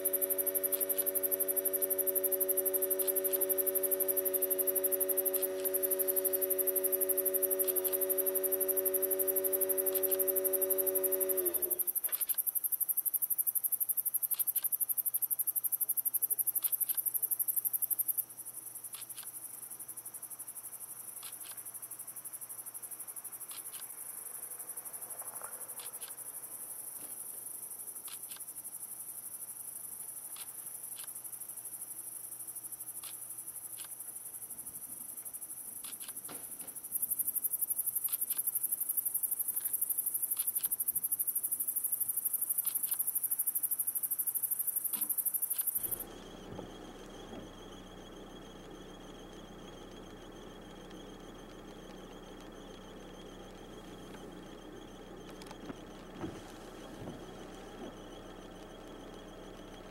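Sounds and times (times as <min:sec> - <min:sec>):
crickets chirping: 0:00.0 - 0:59.9
faint ticks: 0:11.3 - 0:19.8, 0:21.0 - 0:21.9, 0:23.4 - 0:24.1, 0:25.1 - 0:28.8, 0:29.7 - 0:31.6, 0:32.2 - 0:46.0.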